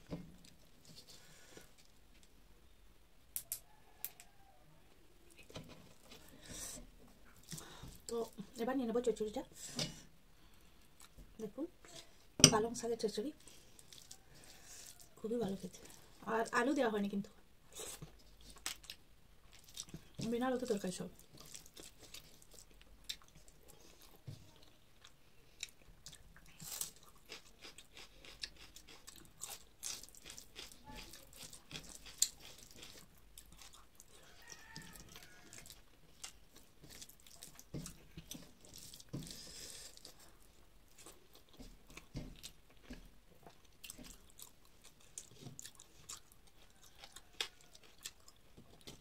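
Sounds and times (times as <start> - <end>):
person chewing food: 5.3 - 8.4, 9.7 - 11.2, 13.4 - 16.2, 17.7 - 20.3, 21.1 - 49.0.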